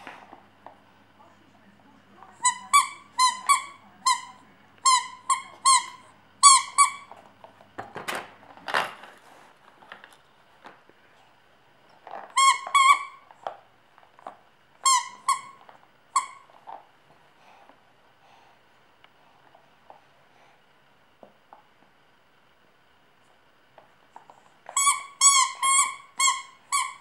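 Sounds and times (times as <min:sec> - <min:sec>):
rubber squeaky ball squeaking: 0:02.4 - 0:07.1, 0:12.3 - 0:13.2, 0:14.8 - 0:16.5, 0:24.6 - 0:27.0.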